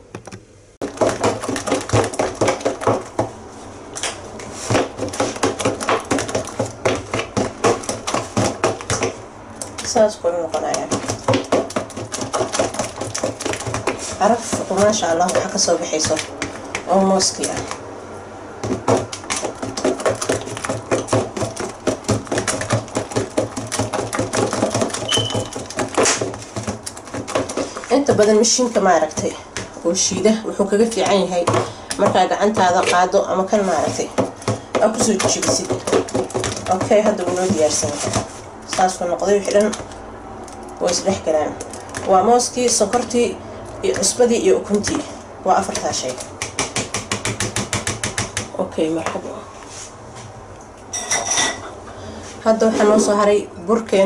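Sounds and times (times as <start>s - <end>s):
fork beating batter in bowl: 0.8s - 3.3s, 4.0s - 9.9s, 10.5s - 17.8s, 18.6s - 40.0s, 43.9s - 48.5s.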